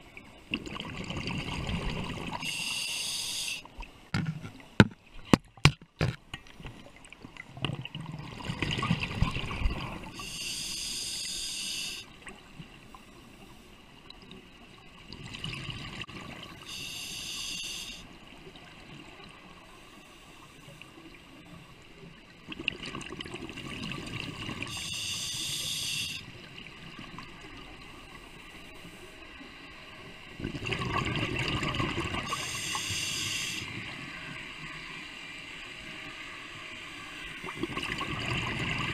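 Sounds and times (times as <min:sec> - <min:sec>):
regulator hiss: 0:02.4 - 0:03.7, 0:10.2 - 0:12.1, 0:16.7 - 0:18.1, 0:24.7 - 0:26.3, 0:32.3 - 0:33.7.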